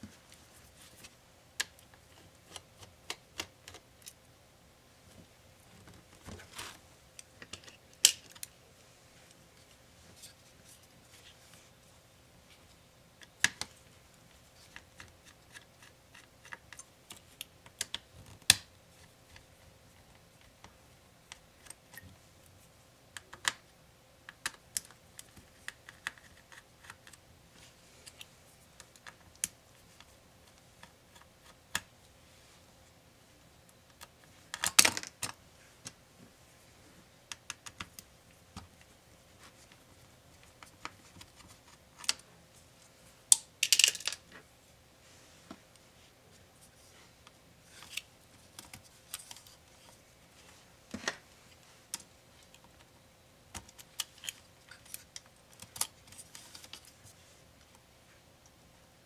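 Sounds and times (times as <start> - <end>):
clatter of handled parts: 43.6 - 44.2.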